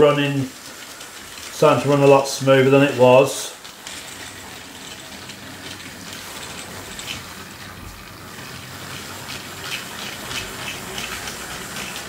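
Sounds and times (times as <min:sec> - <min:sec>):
toy train motor whirring: 0:08.4 - 0:12.0.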